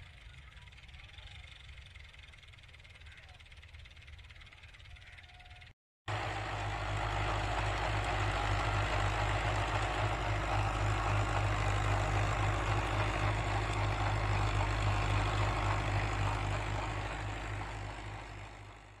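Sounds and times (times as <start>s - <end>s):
tractor diesel engine drone: 0.0s - 19.0s.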